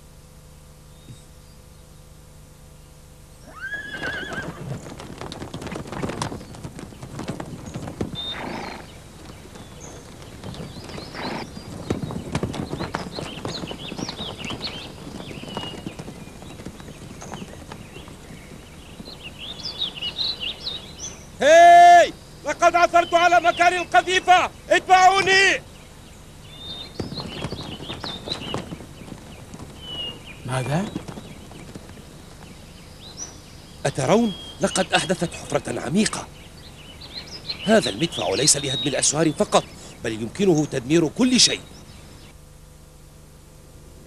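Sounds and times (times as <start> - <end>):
horse whinnying: 3.4 - 4.8, 8.2 - 8.9, 10.9 - 11.6
horses galloping hoofbeats: 3.4 - 42.6.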